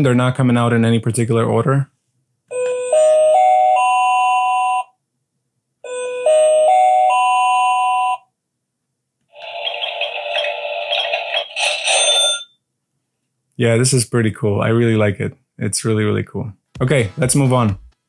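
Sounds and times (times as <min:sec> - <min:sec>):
noisy toy sound effect: 0:09.3 - 0:12.4.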